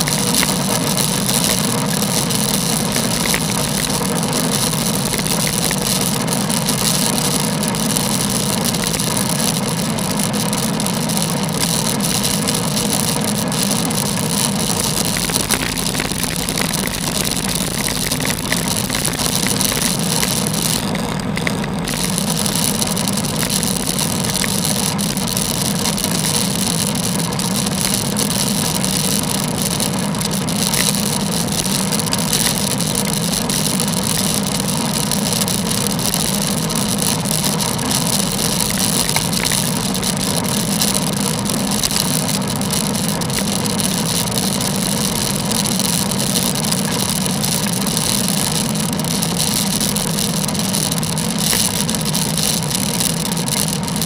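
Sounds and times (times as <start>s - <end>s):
low hum: 0.0s - 30.2s
wind and road noise: 0.0s - 42.2s.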